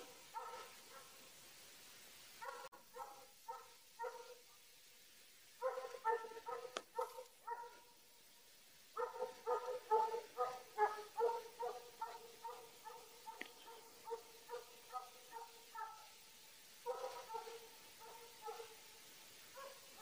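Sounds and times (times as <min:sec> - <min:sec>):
hound baying and yelping: 0:05.6 - 0:07.8, 0:09.0 - 0:16.1.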